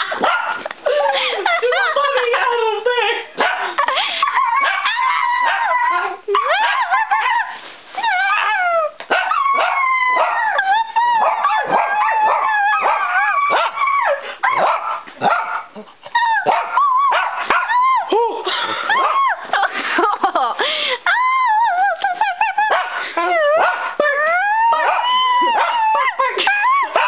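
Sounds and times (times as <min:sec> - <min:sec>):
small dogs barking: 0:00.0 - 0:00.7, 0:03.4 - 0:07.6, 0:08.3 - 0:18.0, 0:24.6 - 0:26.2.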